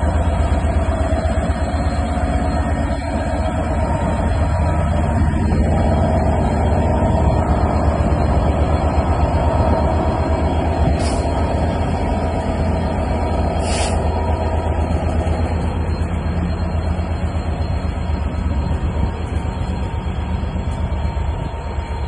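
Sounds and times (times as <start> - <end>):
diesel locomotive engine drone: 0.0 - 22.0
brief high hisses: 13.6 - 14.0.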